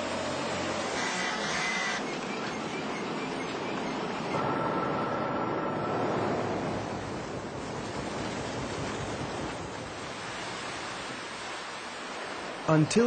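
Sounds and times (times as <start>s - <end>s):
faint high whine: 0.0s - 8.5s
water rushing and churning: 0.0s - 13.0s.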